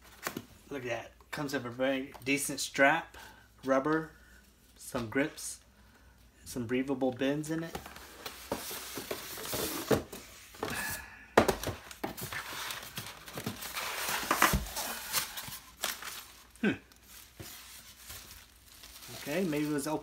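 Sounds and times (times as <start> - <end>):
plastic wrap crinkling: 11.8 - 20.0.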